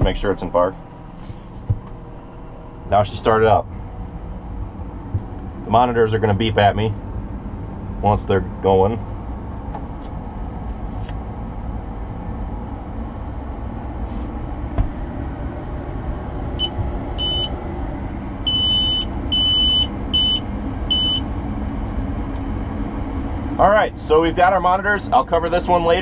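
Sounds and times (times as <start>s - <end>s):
high electronic beeps: 16.6s - 17.5s, 18.5s - 21.2s.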